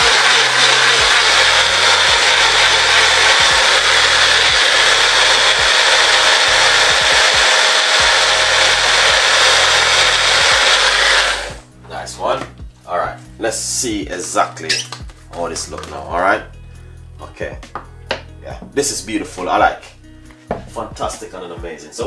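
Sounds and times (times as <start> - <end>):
electric blender running: 0.0 - 11.6.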